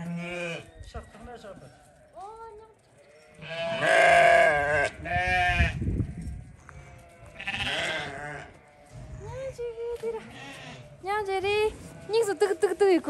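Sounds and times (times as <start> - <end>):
livestock bleating: 0.0 - 0.8, 3.0 - 5.8, 6.5 - 9.0, 10.1 - 11.0, 11.8 - 12.6.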